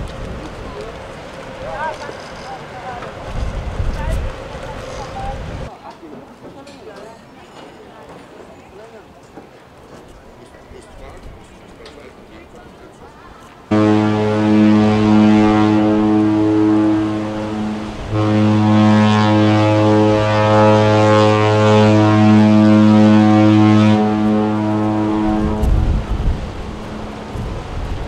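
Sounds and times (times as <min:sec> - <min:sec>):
ship's horn blast: 0:13.7 - 0:27.8.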